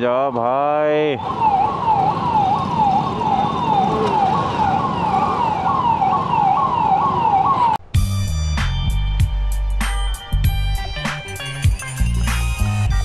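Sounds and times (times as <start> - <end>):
road traffic noise: 0.0 - 7.9
siren in falling sweeps: 1.1 - 7.8
music with heavy bass: 8.0 - 13.0.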